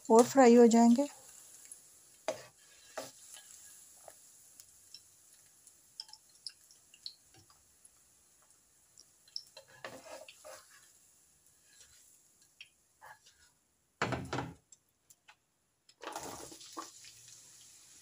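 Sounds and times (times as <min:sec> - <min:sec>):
faint sizzling oil: 0:00.0 - 0:14.0, 0:15.9 - 0:18.0
metal spatula scraping wok: 0:02.2 - 0:04.2, 0:09.6 - 0:11.0, 0:11.6 - 0:12.2.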